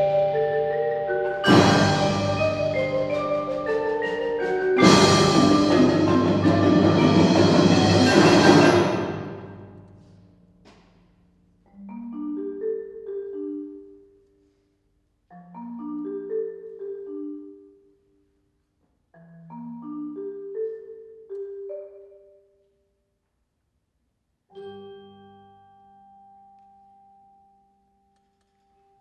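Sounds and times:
marimba and vibraphone notes: 0.0s - 9.9s, 11.7s - 14.4s, 15.3s - 18.3s, 19.1s - 22.6s, 24.5s - 28.0s
loud percussion chord: 1.2s - 10.0s.

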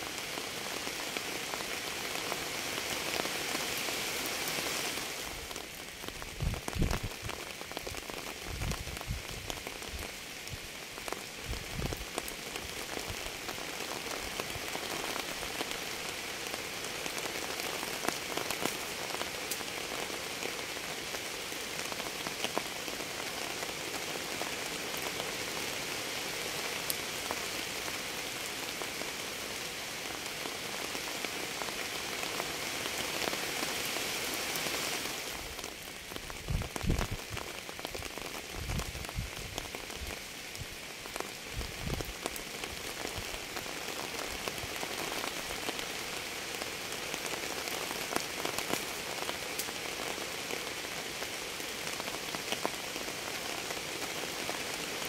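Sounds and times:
rain falling: 0.0s - 55.0s.

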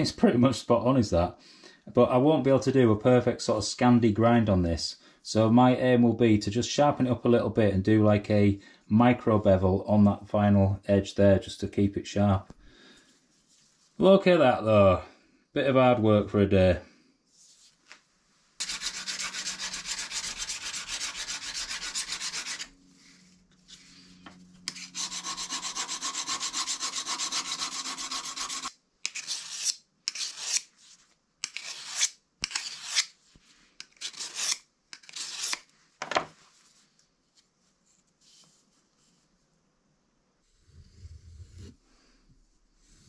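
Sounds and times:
knife scraping on sharpening stone: 24.6s - 30.7s, 31.4s - 33.1s, 33.8s - 35.6s.

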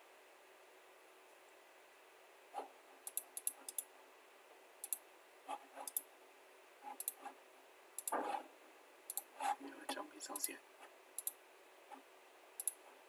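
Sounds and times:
computer mouse clicking: 3.0s - 3.9s, 4.8s - 5.0s, 5.8s - 6.1s, 6.9s - 7.3s, 8.0s - 8.2s, 9.1s - 9.4s, 11.2s - 11.4s, 12.6s - 12.8s.

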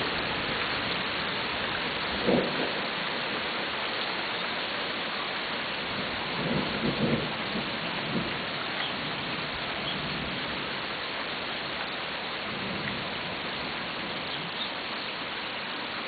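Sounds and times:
low rumble of thunder: 0.0s - 3.5s, 5.8s - 10.9s, 12.4s - 14.6s
heavy rain on pavement: 0.0s - 16.0s.

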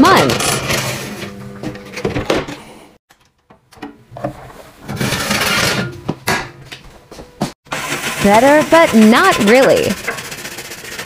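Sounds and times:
tray scraping: 4.3s - 6.0s, 7.7s - 11.0s
metal oven tray clattering: 4.9s - 6.0s.

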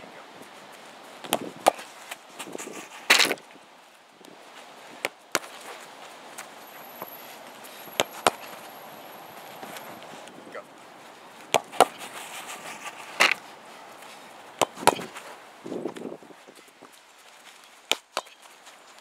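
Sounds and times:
scuffling rustle: 0.0s - 19.0s
ball kick thuds: 1.2s - 1.8s, 7.9s - 8.7s, 11.5s - 13.4s, 14.6s - 15.2s.

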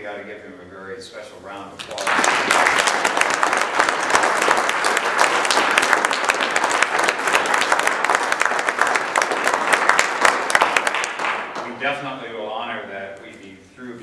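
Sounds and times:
audience applauding: 1.8s - 11.9s.

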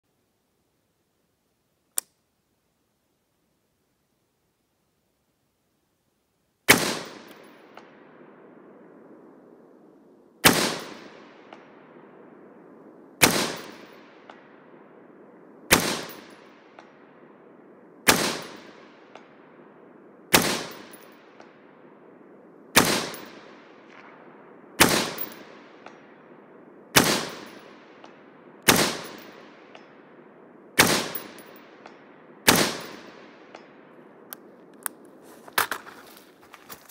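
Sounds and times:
rifle shots with echo: 6.7s - 9.7s, 10.4s - 34.3s.

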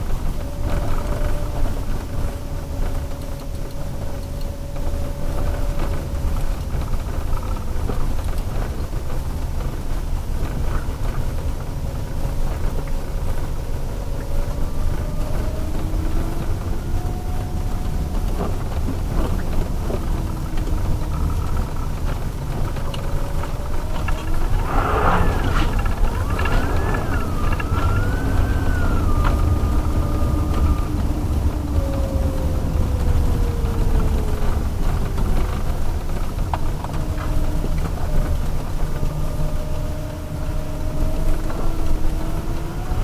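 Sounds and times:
tyre and road rumble: 0.0s - 43.0s
electric motor whine: 13.4s - 43.0s.

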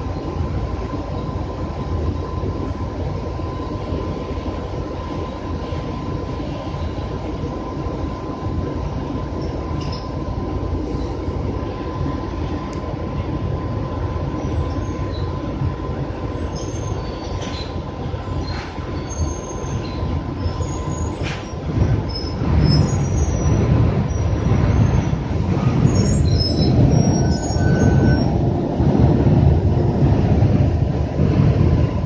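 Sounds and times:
bus engine rumble: 0.0s - 32.0s
squeaks and rattles of seats: 16.6s - 28.6s.

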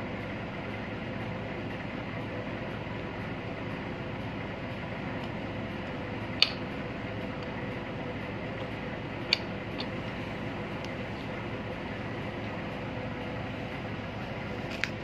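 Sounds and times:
machinery hum: 0.0s - 15.0s
sharp small clicks: 9.3s - 9.9s.

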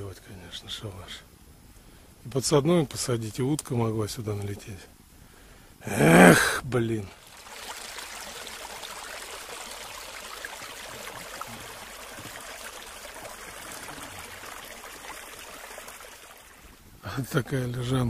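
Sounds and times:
water running down a ditch: 7.1s - 16.8s.

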